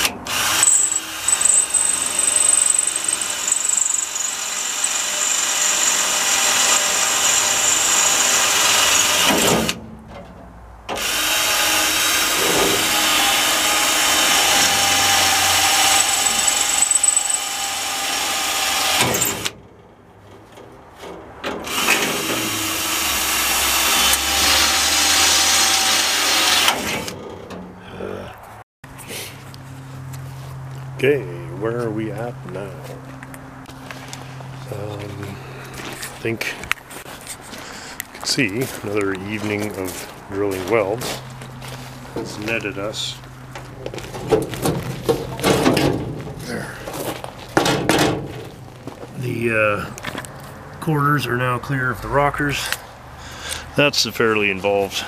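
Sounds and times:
electric drill cutting sheet steel: 0.0s - 9.8s, 11.0s - 19.5s, 21.7s - 27.1s.

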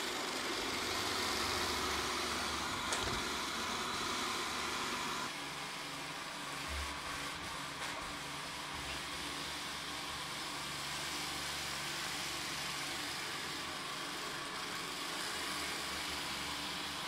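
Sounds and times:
robot vacuum running: 0.0s - 10.8s.

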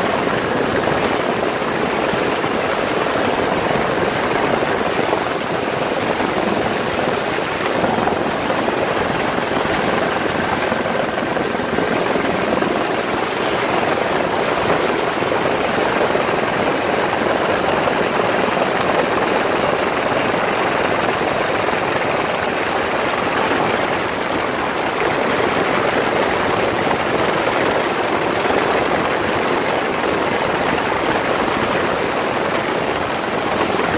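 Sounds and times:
thin high whine: 0.0s - 16.8s
helicopter rotor and engine: 0.0s - 33.9s.

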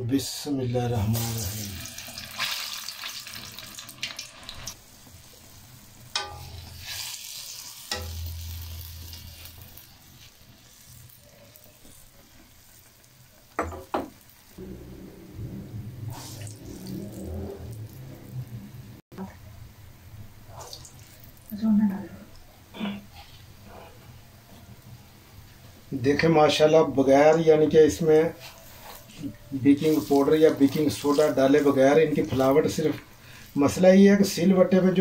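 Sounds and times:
batter sizzling in hot fat: 0.8s - 14.6s, 16.1s - 18.4s, 26.0s - 35.0s.

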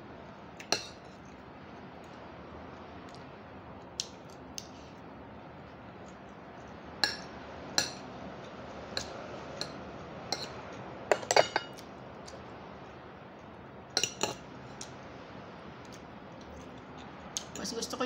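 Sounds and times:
cutlery clinking on a ceramic plate: 7.0s - 8.0s, 9.0s - 11.8s, 14.0s - 14.4s.

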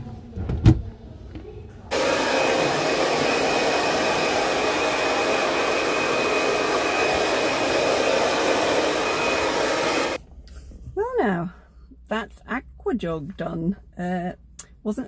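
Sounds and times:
hair dryer blowing: 1.9s - 10.2s
high motor whine: 1.9s - 10.2s.

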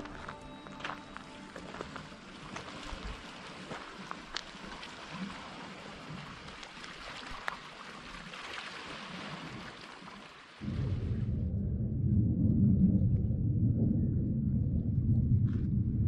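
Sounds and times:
small waves lapping on rocks: 0.2s - 10.6s
low rumble: 10.6s - 16.0s.

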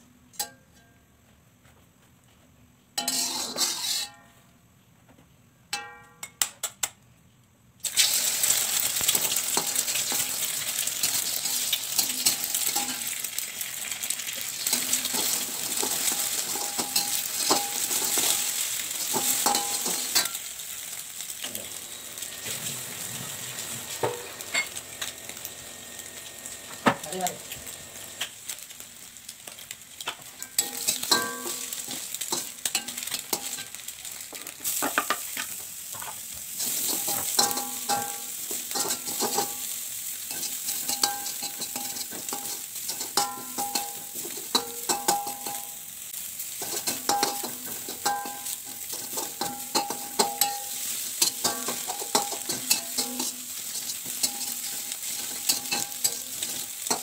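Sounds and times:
metal spatula scraping wok: 3.0s - 4.3s, 8.8s - 13.4s, 14.5s - 28.2s, 30.4s - 45.8s, 46.5s - 57.0s
egg sizzling in oil: 7.8s - 57.0s.

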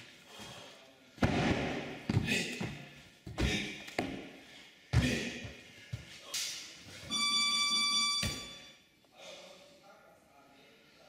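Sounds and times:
high electronic beep: 7.1s - 8.8s.

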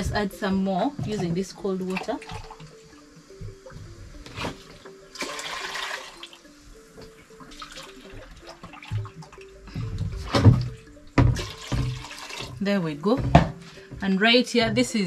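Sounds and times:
water pouring into a pot: 5.2s - 6.4s, 11.4s - 12.6s.

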